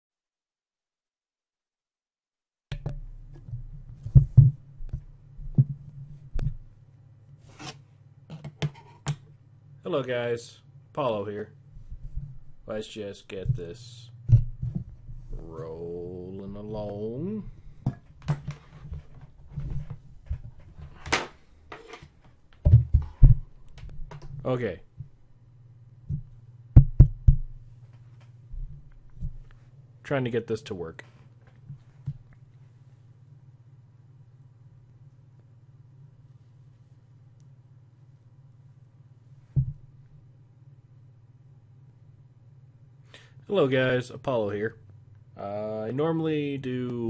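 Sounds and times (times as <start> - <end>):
dull knocks and bumps: 2.7 - 5.8, 22.6 - 24.3, 26.1 - 27.6
low steady hum: 2.7 - 47.0
brief scrape: 7.4 - 7.8.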